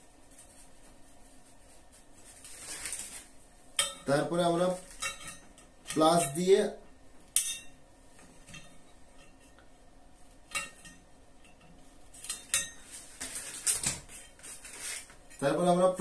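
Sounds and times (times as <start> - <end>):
pliers scraping on metal: 10.5 - 13.6.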